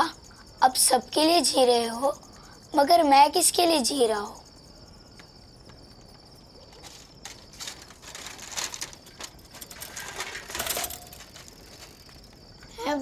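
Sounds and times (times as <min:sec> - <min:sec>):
crickets chirring: 0:00.0 - 0:13.0
clattering and rustling: 0:06.1 - 0:12.5.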